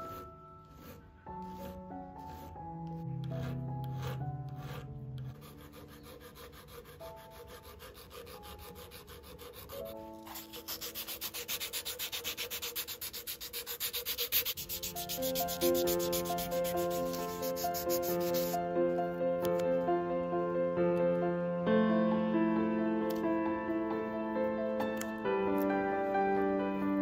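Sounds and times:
hand file rubbing metal: 0:00.0 - 0:18.6
background music: 0:00.0 - 0:27.0.

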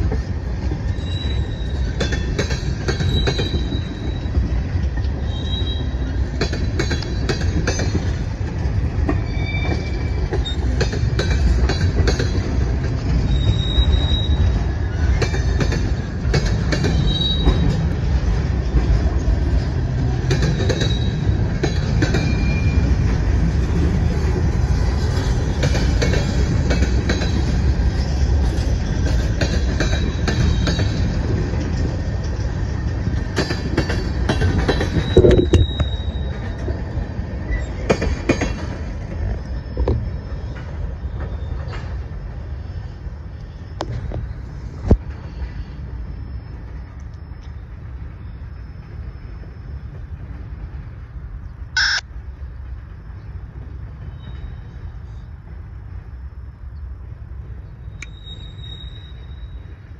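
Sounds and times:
steel wheels rumbling on rail: 0:00.0 - 0:59.9
high-pitched wheel squeals: 0:00.8 - 0:02.3, 0:02.9 - 0:06.2, 0:09.1 - 0:10.8, 0:13.2 - 0:15.6, 0:16.9 - 0:17.8, 0:20.5 - 0:21.5, 0:22.1 - 0:23.0, 0:34.0 - 0:37.9, 0:51.8 - 0:52.0, 0:57.8 - 0:59.9.

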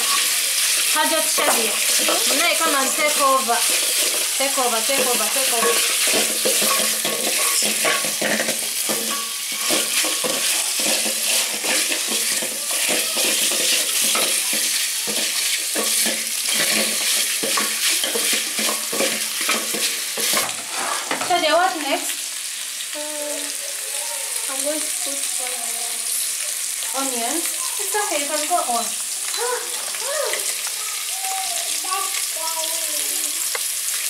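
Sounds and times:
wooden spoon scraping a pot: 0:00.0 - 0:21.4
meat sizzling in a pot: 0:00.0 - 0:34.0.

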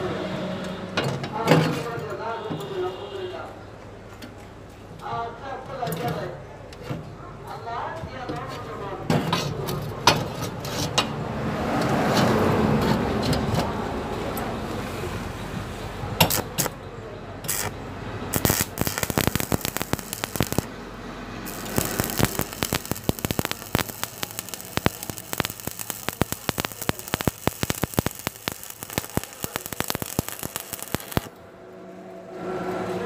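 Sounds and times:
welding arc crackling: 0:16.2 - 0:16.8, 0:17.5 - 0:20.8, 0:21.4 - 0:31.3.

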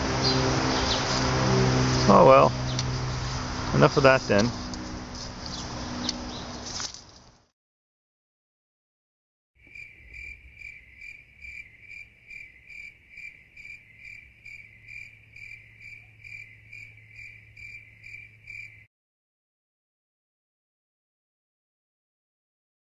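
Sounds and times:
cricket chirping: 0:09.6 - 0:18.9.

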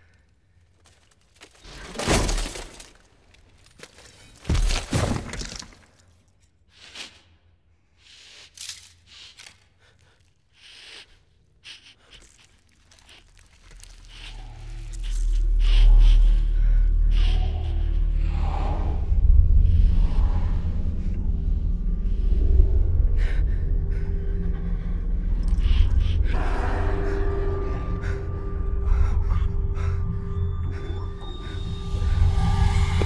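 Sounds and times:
low rumble: 0:13.6 - 0:33.0.

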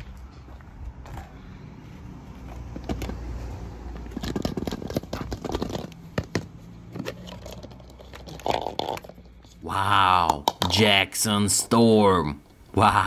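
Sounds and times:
plastic balls rattling: 0:02.7 - 0:10.8.

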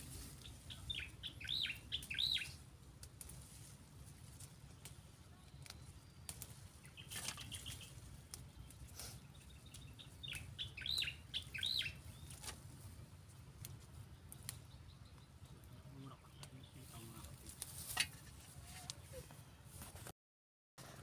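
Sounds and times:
plants snapping and rustling: 0:00.0 - 0:11.5, 0:12.2 - 0:14.7, 0:17.2 - 0:19.1
low steady rumble: 0:00.0 - 0:20.0
bird chirping: 0:00.4 - 0:02.6, 0:04.8 - 0:12.5, 0:14.0 - 0:17.1.

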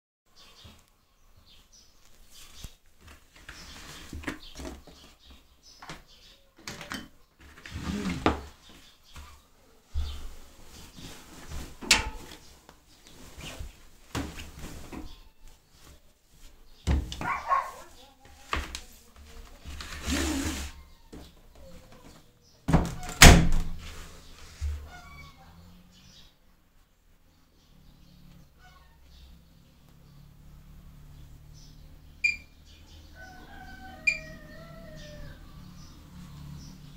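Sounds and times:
duvet handling noise: 0:10.0 - 0:20.8
dryer door thunks: 0:11.8 - 0:12.3, 0:22.7 - 0:23.8
faint high chirps: 0:32.2 - 0:32.6.

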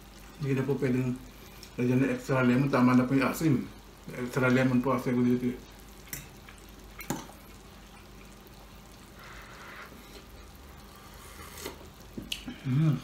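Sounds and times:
soft slurp: 0:09.1 - 0:12.7.

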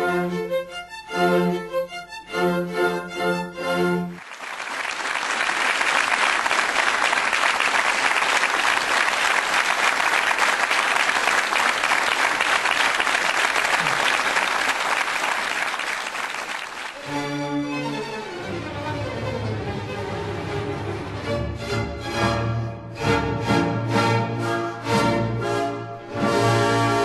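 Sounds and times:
music: 0:00.0 - 0:04.2, 0:17.0 - 0:27.0
audience applauding: 0:04.1 - 0:17.1.

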